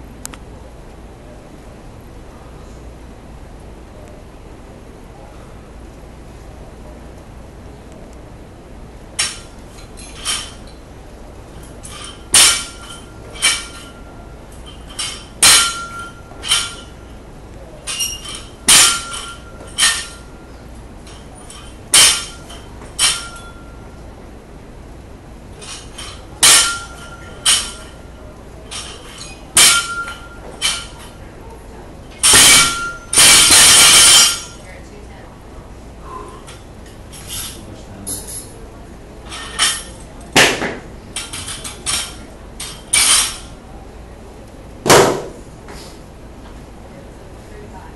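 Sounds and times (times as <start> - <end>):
barbell plates clanking on rubber: 11.8 - 14.0, 17.9 - 20.3, 21.5 - 23.7, 25.6 - 28.0, 32.2 - 34.6
short metallic ring: 32.2 - 34.6.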